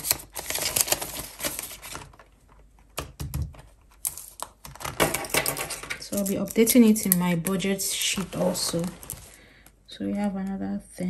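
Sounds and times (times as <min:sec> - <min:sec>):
plastic pouch and banknotes crinkling: 0:00.0 - 0:09.8.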